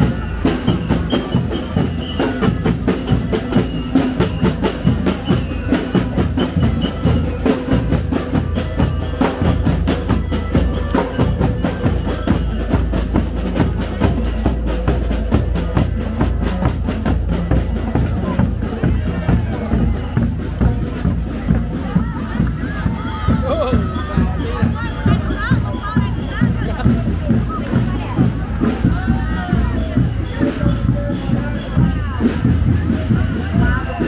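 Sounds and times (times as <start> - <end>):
bass drum beats: 0.0 - 34.0.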